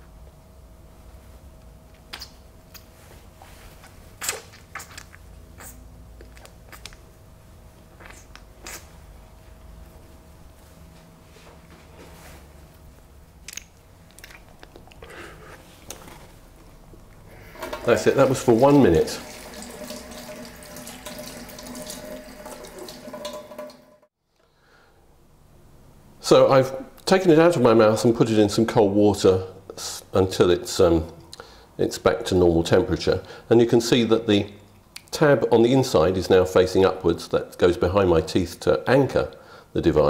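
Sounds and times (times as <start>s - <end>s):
tap water splashing into sink: 17.6s - 23.9s.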